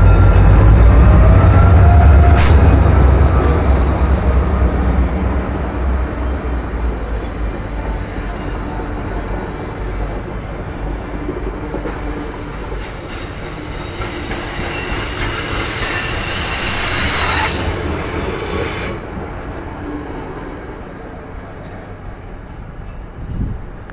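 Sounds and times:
train wheels rumbling on rails: 0.0 - 23.9
high thin wheel squeal: 3.1 - 19.1.

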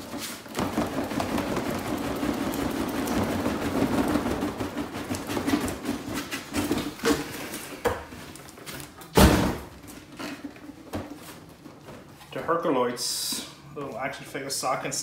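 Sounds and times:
loud thump: 9.2 - 9.7.

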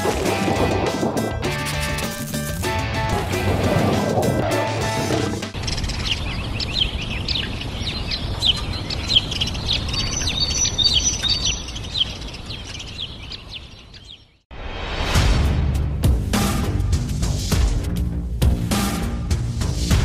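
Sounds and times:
flock of birds chirping: 4.4 - 14.4.

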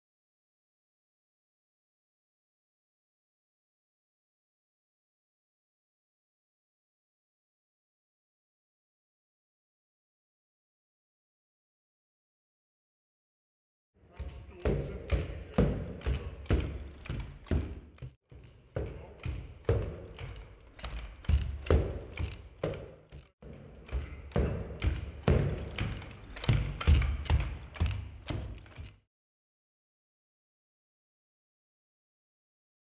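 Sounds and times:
robot feet thudding on concrete: 14.1 - 29.0.

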